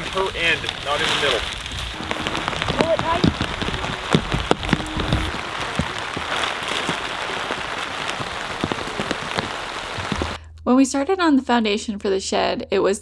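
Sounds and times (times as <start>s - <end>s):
rain pattering on plastic sheeting: 0.0s - 10.4s.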